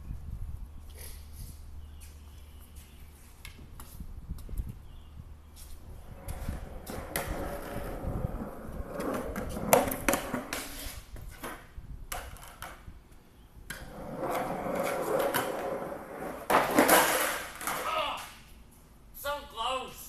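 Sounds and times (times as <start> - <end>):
skateboard wheels rolling on concrete: 0.0 - 18.3
skateboard clacks: 6.2 - 10.8, 13.7 - 18.0.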